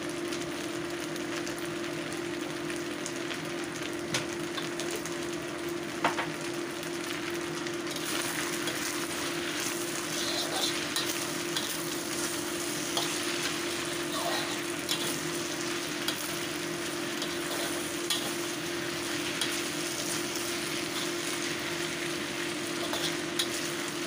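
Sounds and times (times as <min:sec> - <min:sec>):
noodles sizzling in a wok: 0:00.0 - 0:24.0
steady low hum: 0:06.8 - 0:24.0.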